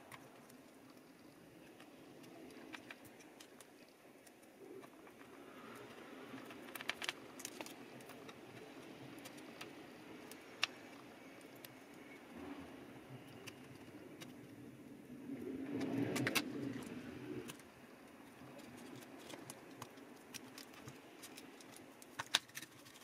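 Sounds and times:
low steady hum: 0.0s - 23.0s
tool prying clicks and scratches: 18.8s - 23.0s.

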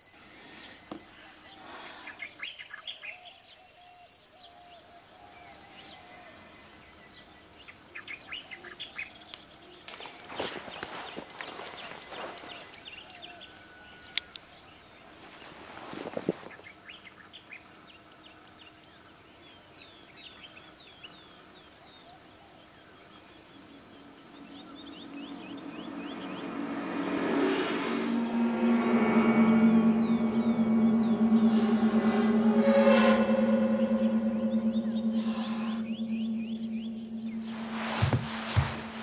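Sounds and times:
high insect drone: 0.0s - 39.0s
low humming music drone: 23.1s - 39.0s.

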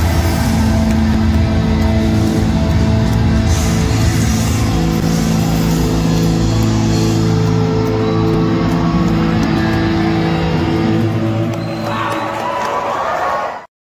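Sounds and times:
live rock band playing: 0.0s - 11.2s
sustained electric guitar chords: 0.0s - 11.6s.

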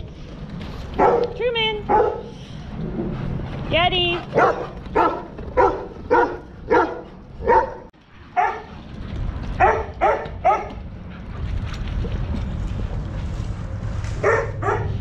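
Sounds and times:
dog barking: 1.0s - 1.3s, 1.9s - 2.3s, 4.4s - 8.7s, 9.6s - 10.7s, 14.2s - 15.0s.

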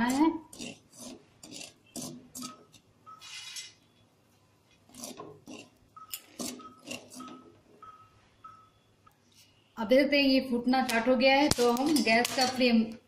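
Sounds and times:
spoon scraping kernels in salt: 0.0s - 3.8s, 4.9s - 7.4s.

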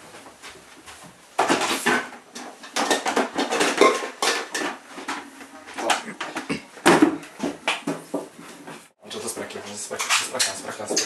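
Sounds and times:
household items clattering: 1.0s - 8.9s.

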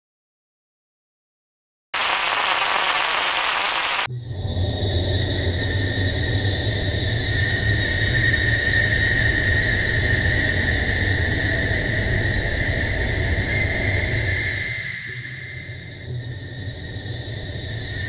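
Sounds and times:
high whine: 2.0s - 5.0s.

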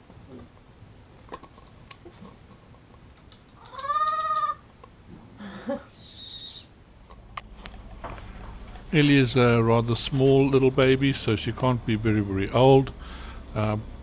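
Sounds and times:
high monkey squeal: 3.6s - 4.6s, 5.8s - 6.8s
infant monkey calling: 3.6s - 4.7s, 5.8s - 6.8s.

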